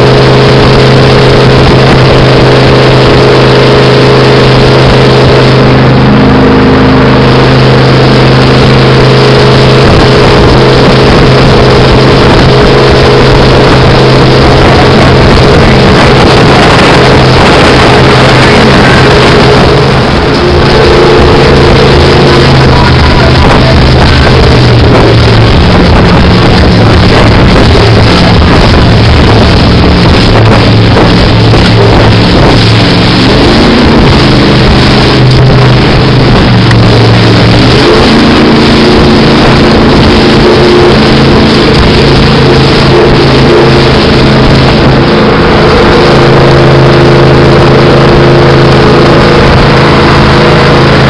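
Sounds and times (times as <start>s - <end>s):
boat engine drone: 0.0s - 51.0s
rushing water and spray: 0.0s - 51.0s
wind: 0.0s - 51.0s.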